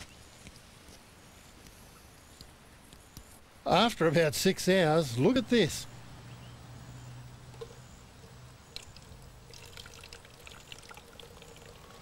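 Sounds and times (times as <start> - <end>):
water drips and splashes: 8.7 - 12.0
water trickling into a glass: 8.7 - 12.0.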